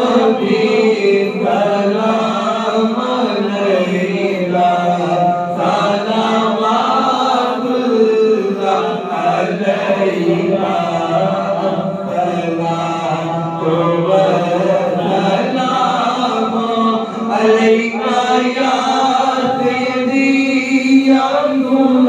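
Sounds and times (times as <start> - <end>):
man chanting into a microphone: 0.0 - 22.0.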